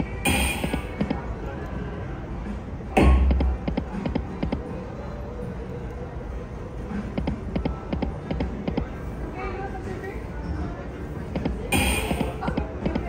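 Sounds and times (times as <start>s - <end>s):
slot machine background music: 0.0s - 1.2s, 11.4s - 13.0s
slot machine spin thump: 0.3s - 1.2s, 11.4s - 13.0s.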